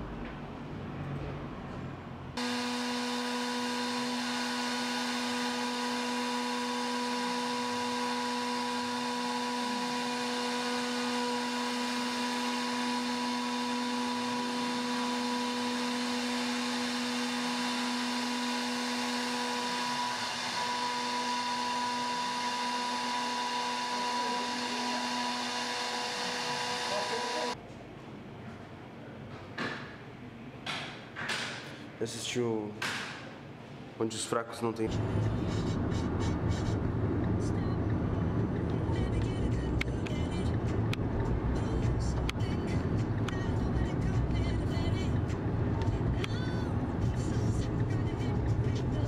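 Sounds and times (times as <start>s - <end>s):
router spindle motor whine: 2.4s - 27.6s.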